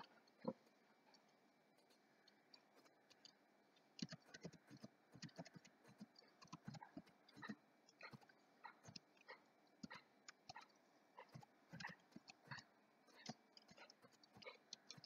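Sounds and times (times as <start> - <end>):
typing on computer keyboard: 4.0 - 15.0.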